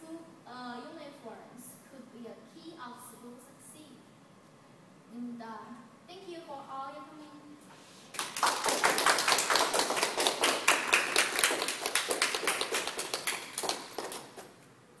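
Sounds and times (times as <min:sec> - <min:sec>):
people applauding: 0:08.1 - 0:14.6.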